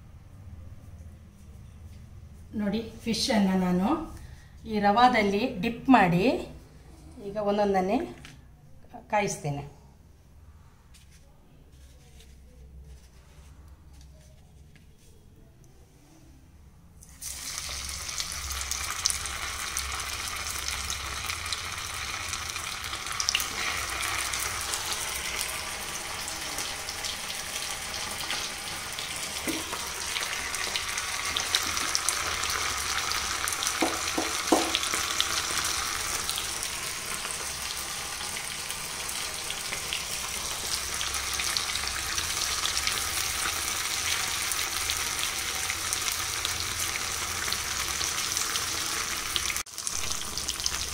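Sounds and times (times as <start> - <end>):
fish sizzling in hot oil: 17.0 - 50.9.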